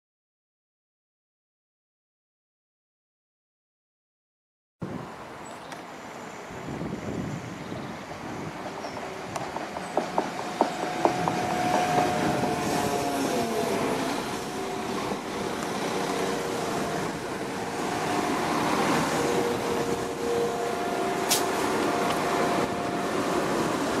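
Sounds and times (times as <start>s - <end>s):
train rumble: 4.8s - 24.0s
train whine: 4.8s - 24.0s.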